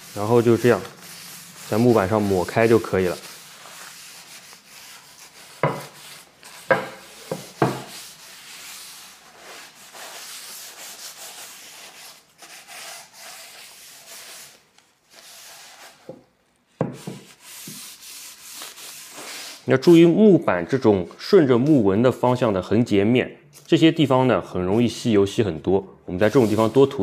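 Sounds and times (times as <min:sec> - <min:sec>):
paper towel rubbing wooden board: 0:00.0 - 0:16.2, 0:16.8 - 0:20.1, 0:26.2 - 0:27.0.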